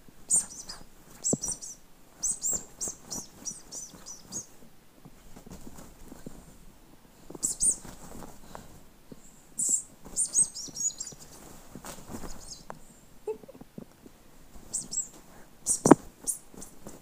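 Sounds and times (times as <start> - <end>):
rustling duvet: 0.1 - 8.9, 9.6 - 12.8, 14.2 - 17.0
small bird chirping: 0.3 - 4.6, 7.4 - 8.0, 9.6 - 11.5, 12.1 - 12.7, 14.6 - 17.0.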